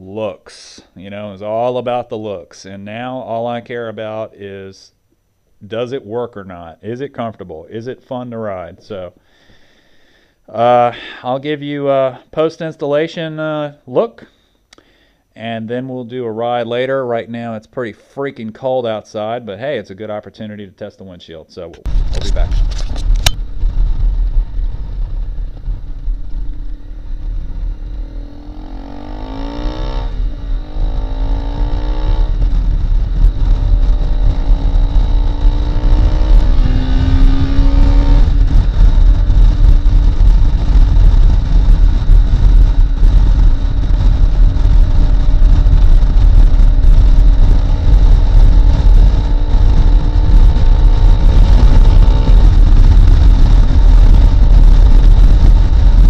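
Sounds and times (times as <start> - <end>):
motorcycle engine revving: 21.9 - 56.0
wind rumble on microphone: 21.9 - 56.0.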